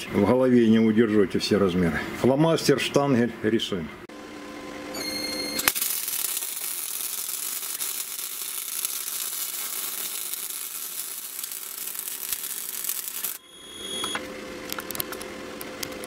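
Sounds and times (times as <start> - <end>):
welder crackling sizzle: 5.6 - 14.0.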